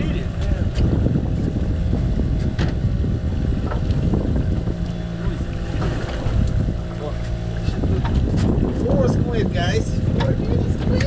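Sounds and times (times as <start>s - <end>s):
wind buffeting microphone: 0.0s - 11.0s.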